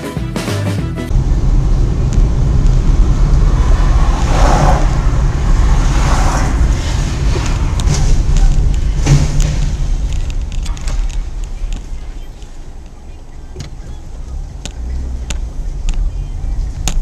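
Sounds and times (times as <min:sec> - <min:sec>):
car engine and road noise: 0:01.0 - 0:17.0
short thump: 0:07.2 - 0:12.0.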